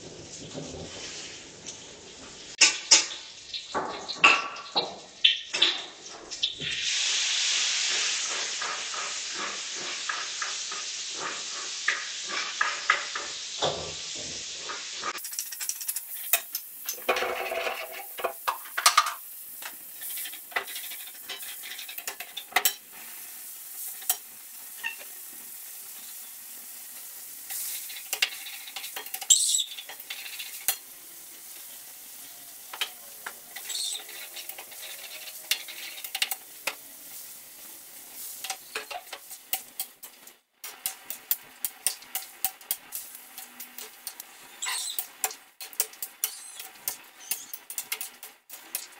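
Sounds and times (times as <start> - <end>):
food sizzling in pan: 0.0 - 48.9
utensil scraping pan: 20.0 - 22.8, 27.5 - 30.9, 32.6 - 37.3, 38.0 - 48.9.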